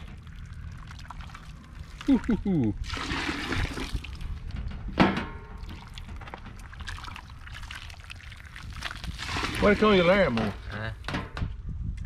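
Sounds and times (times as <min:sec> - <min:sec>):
grease pouring into bucket: 0:00.0 - 0:02.1, 0:02.8 - 0:04.4, 0:05.6 - 0:10.4.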